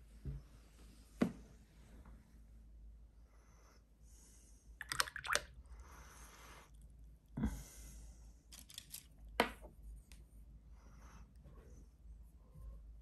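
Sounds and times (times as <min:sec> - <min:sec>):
painting supplies clicking and tapping: 0:08.5 - 0:09.8.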